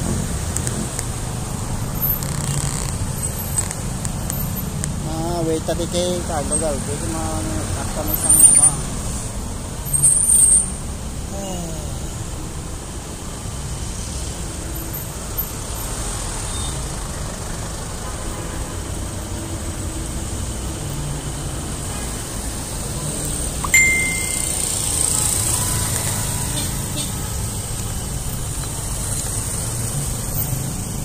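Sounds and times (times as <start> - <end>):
city street traffic rumble: 0.0 - 31.0
short ding: 23.6 - 24.8.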